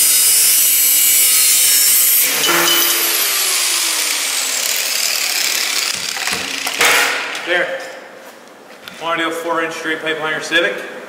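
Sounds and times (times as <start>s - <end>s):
grinder winding down whine: 0.0s - 6.8s
angle grinder cutting steel pipe: 0.0s - 6.9s.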